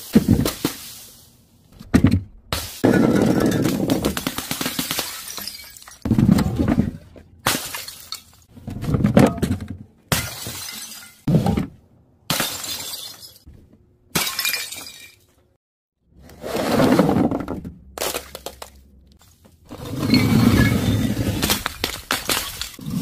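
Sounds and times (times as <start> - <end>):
objects smashing on tiles: 2.6 - 6.9, 9.2 - 11.3, 12.3 - 13.5, 20.6 - 23.0.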